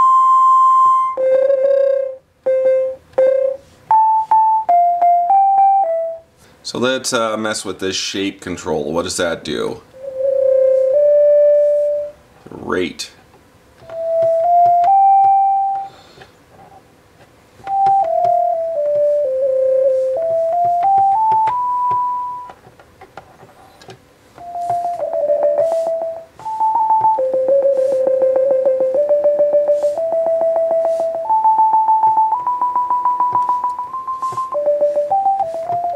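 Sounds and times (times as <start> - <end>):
synth playing single notes: 0.0 - 6.2, 9.9 - 12.2, 17.7 - 22.6, 24.4 - 35.9.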